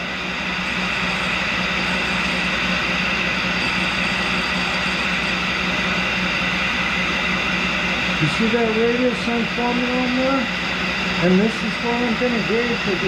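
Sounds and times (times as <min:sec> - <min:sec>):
lathe tool grinding on wheel: 0:00.0 - 0:13.0
shop vacuum running: 0:00.0 - 0:13.0
tool grinder running: 0:00.0 - 0:13.0.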